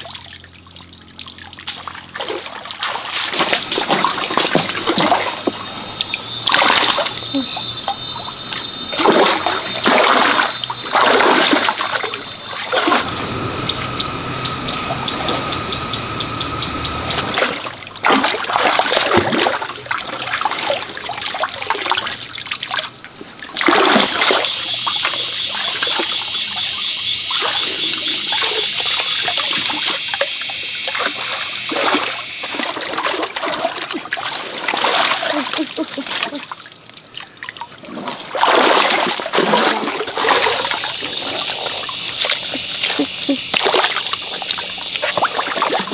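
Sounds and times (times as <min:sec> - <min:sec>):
water splashing in stream: 0:00.0 - 0:45.9
high-pitched buzz: 0:11.7 - 0:17.9.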